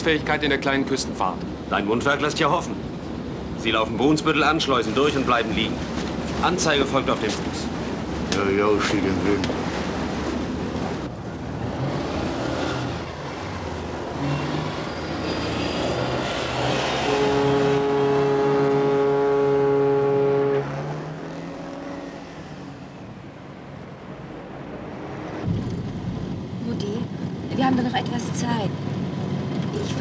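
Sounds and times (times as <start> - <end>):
loud steady drone: 11.1 - 28.3.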